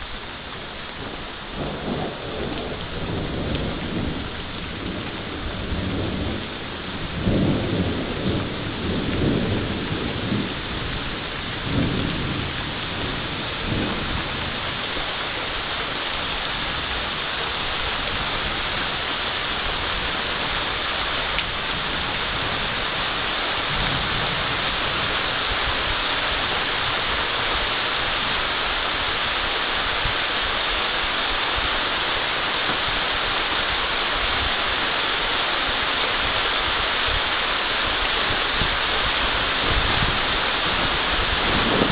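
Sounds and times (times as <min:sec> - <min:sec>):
heavy rain: 0:00.0 - 0:41.9
rolling thunder: 0:00.9 - 0:27.7, 0:37.1 - 0:41.9.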